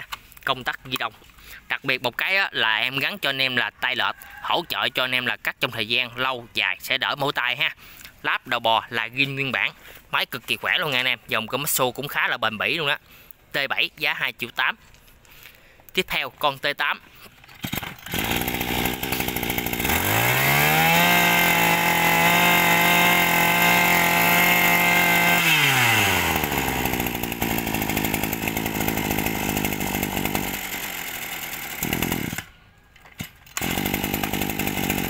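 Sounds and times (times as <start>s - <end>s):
brush cutter engine revving: 17.3s - 32.5s, 33.2s - 35.0s.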